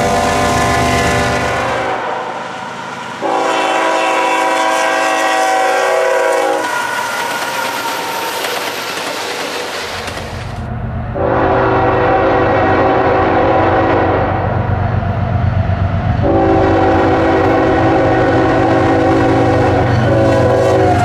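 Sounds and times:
locomotive horn blowing: 0.0s - 2.5s, 3.2s - 7.2s, 11.2s - 14.6s, 16.2s - 21.0s.

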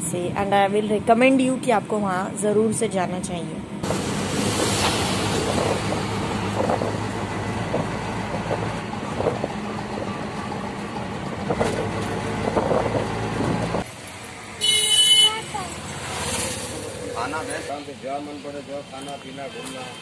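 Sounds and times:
auto-rickshaw engine running: 0.0s - 19.0s
road and wind noise: 0.0s - 20.0s
vehicle horn: 14.6s - 15.6s.

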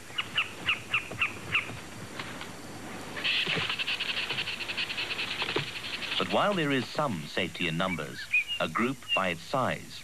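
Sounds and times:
squirrel alarm chirps: 7.8s - 9.4s.

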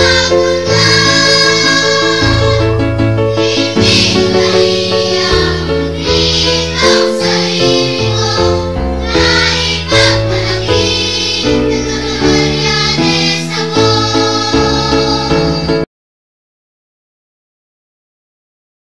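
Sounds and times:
hymn sung over instruments: 0.0s - 2.7s, 3.4s - 8.6s.

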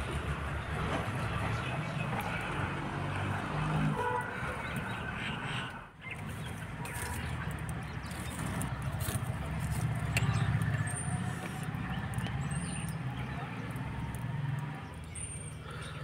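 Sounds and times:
fire low rumble: 0.0s - 3.8s, 4.4s - 16.0s
wood fire crackling: 6.2s - 16.0s.

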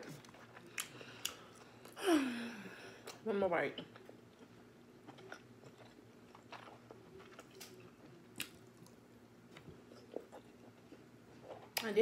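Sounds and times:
person chewing: 3.9s - 11.8s.

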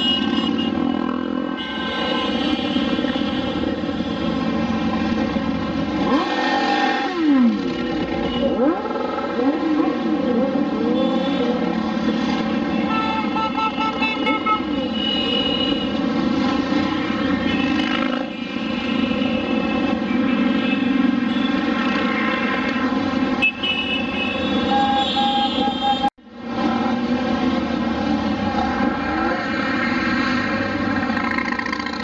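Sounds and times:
horns honking: 0.0s - 4.6s, 7.6s - 8.8s, 10.3s - 16.3s, 16.9s - 21.9s, 23.4s - 26.2s
motorcycles riding past: 26.8s - 32.0s.

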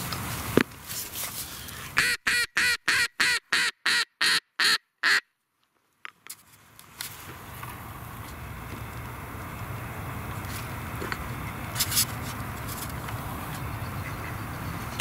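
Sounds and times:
duck call quacks: 2.0s - 5.3s.

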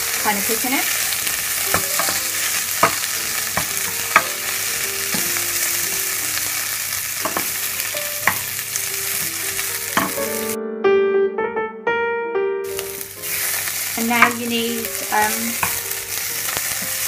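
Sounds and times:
chicken sizzling in a pan: 0.0s - 10.6s, 12.7s - 17.0s
wooden spoon knocking a pan: 1.6s - 5.7s, 7.2s - 8.6s, 9.3s - 10.4s, 14.0s - 15.9s.

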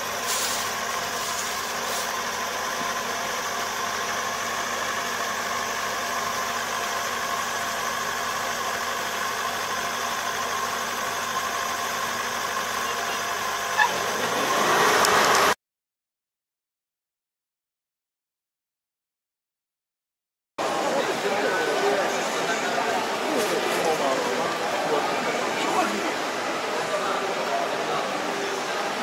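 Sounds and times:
combine harvester engine running: 0.0s - 15.6s.

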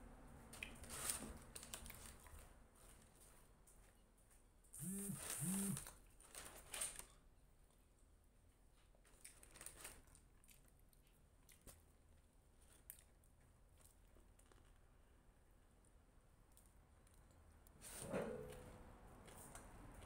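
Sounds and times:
paper wrapper crinkling: 0.8s - 3.0s, 5.2s - 7.2s, 9.0s - 10.3s
person humming mm: 4.8s - 5.8s.

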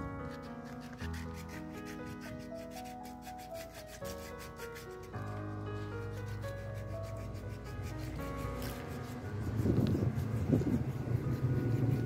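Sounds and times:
background music: 0.0s - 12.0s
sandpaper rubbing on metal: 0.4s - 12.0s.

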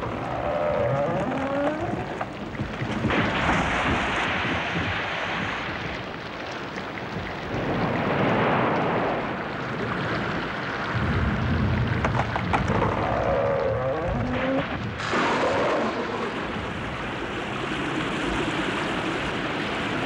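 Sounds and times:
thunder rumble: 0.0s - 6.2s, 7.2s - 20.0s
rain and wind rushing: 0.0s - 20.0s.

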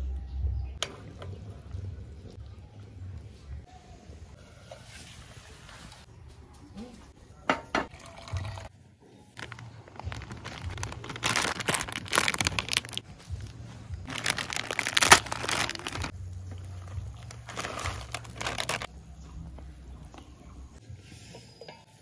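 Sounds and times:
plastic packet crinkling and tearing: 9.4s - 13.0s, 14.1s - 16.1s, 17.2s - 18.9s.

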